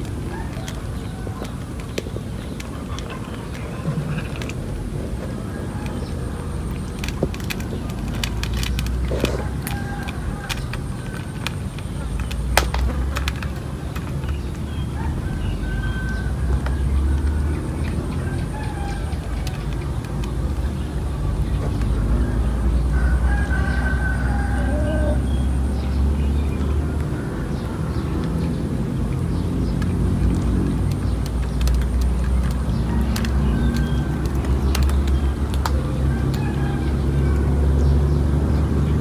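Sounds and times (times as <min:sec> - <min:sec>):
sharp clicks: 0:05.8 - 0:14.8, 0:27.0 - 0:37.4
rooster crowing: 0:09.1 - 0:11.1, 0:14.9 - 0:16.6, 0:18.2 - 0:19.3, 0:22.3 - 0:25.4, 0:36.0 - 0:37.9.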